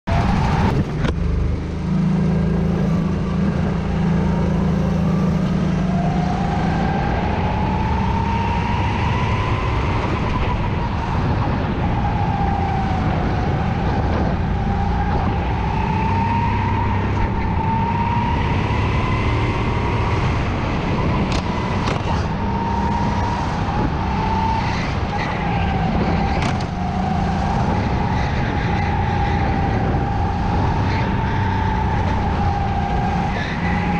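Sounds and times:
go-kart engine: 0.1 - 33.9.

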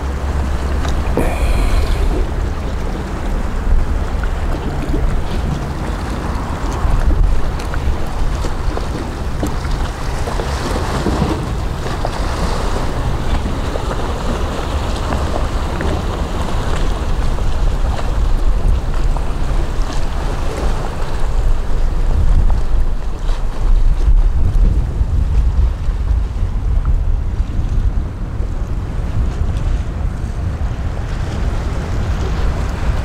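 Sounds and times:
waves on rocky shore: 0.0 - 33.0
wind buffeting microphone: 0.0 - 33.0.

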